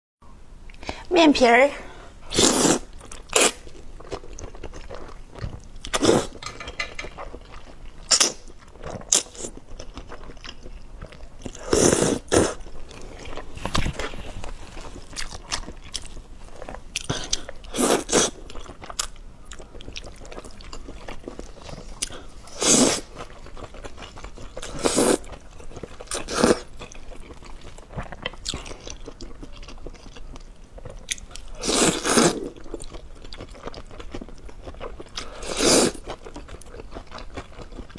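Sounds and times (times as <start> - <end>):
woman slurping noodles: 2.3 - 3.5
wet chewing: 2.4 - 37.9.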